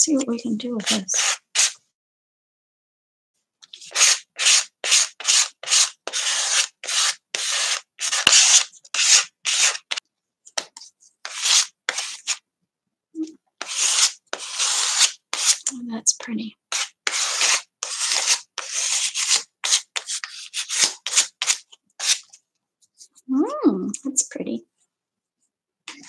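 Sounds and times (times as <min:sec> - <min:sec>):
rubbing strokes across paper: 0:00.8 - 0:01.8, 0:03.7 - 0:10.0, 0:13.6 - 0:15.7, 0:16.7 - 0:22.4.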